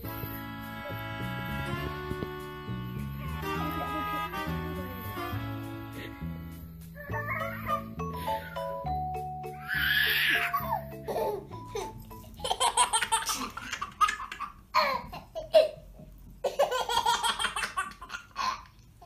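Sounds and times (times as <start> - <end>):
baby laughing and giggling: 7.0 - 8.7, 9.6 - 18.8.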